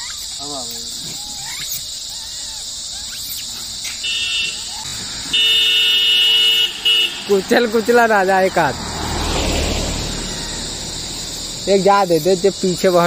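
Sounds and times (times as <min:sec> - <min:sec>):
monkey calls: 0:00.0 - 0:05.2
high insect drone: 0:00.0 - 0:13.0
vehicle horn honking: 0:04.0 - 0:07.5.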